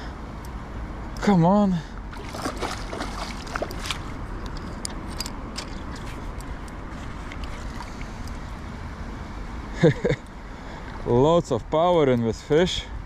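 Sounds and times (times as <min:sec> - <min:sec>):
flowing river water: 0:01.9 - 0:08.5.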